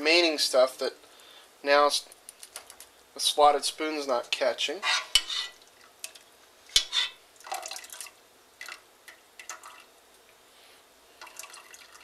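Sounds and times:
liquid dripping into a pot: 5.6 - 10.4, 11.2 - 12.0.

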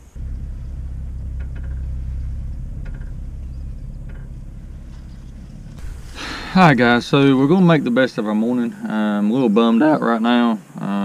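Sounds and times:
low steady rumble: 0.0 - 8.8.

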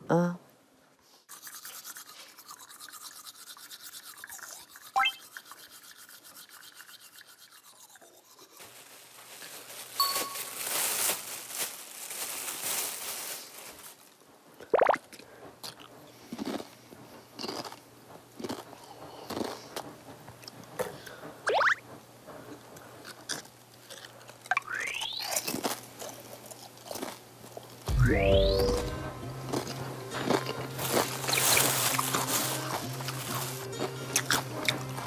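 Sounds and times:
swooping sound effects: 5.0 - 5.2, 27.9 - 29.2
plastic snack bag crinkling: 8.6 - 14.1.

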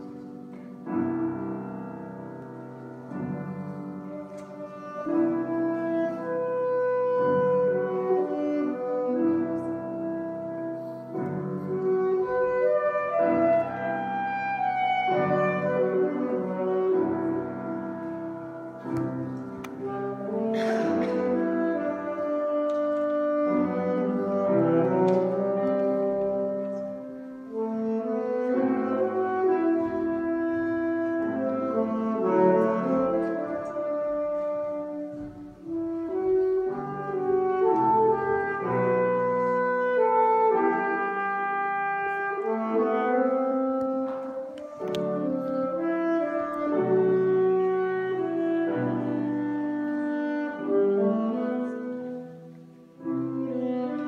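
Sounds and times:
alto saxophone melody: 0.0 - 54.0
piano accompaniment: 0.0 - 54.0.

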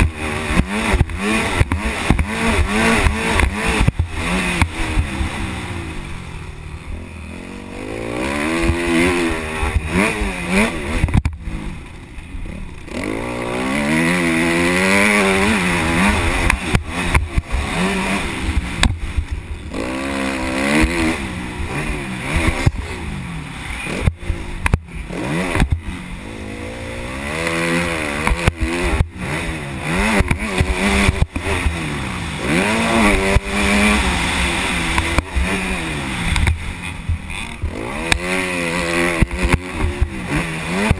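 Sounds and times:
dirt bike engine revving: 0.0 - 40.9.

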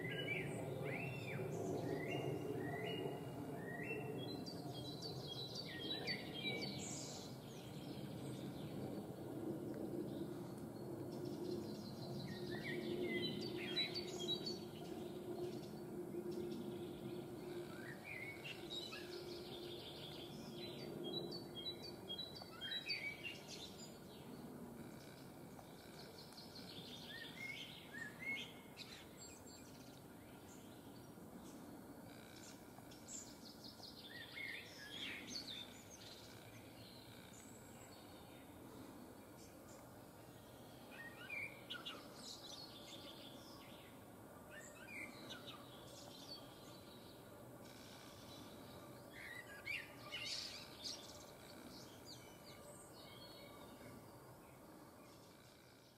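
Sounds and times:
low outdoor hiss: 0.0 - 55.9
songbirds chirping: 0.0 - 55.9.

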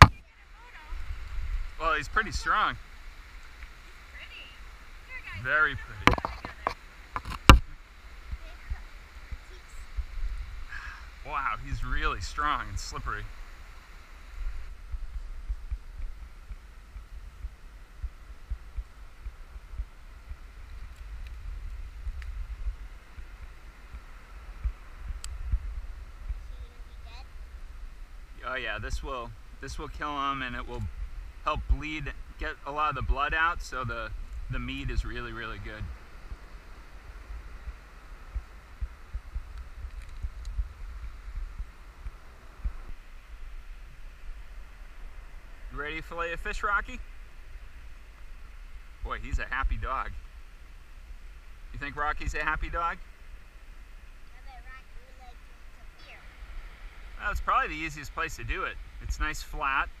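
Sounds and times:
faint steady hiss: 0.0 - 60.0
wind buffeting microphone: 0.0 - 60.0
thumping rumble on microphone: 5.8 - 10.7, 14.4 - 27.8, 37.7 - 43.1.

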